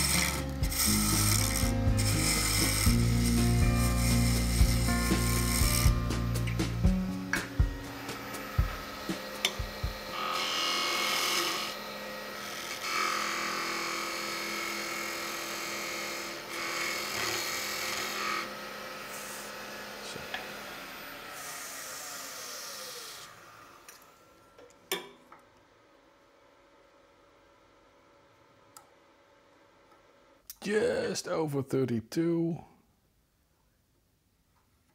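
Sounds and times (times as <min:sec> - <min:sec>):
chisel scraping wood: 0:00.0 - 0:06.0
wood lathe whining: 0:00.0 - 0:30.4.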